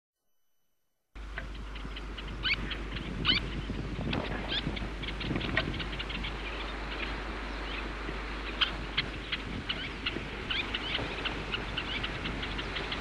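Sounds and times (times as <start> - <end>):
low hum: 1.2 - 13.0
steady hiss: 1.2 - 13.0
terns calling: 1.2 - 13.0.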